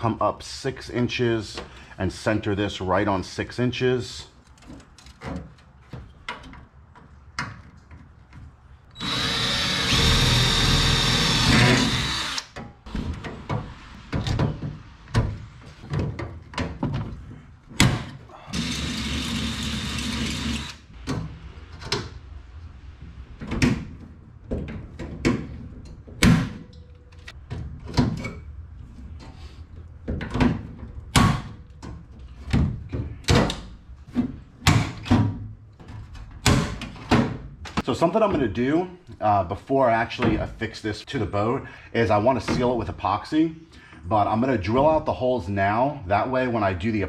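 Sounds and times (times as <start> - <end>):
cordless drill drilling metal: 9.0 - 12.6, 18.5 - 20.9.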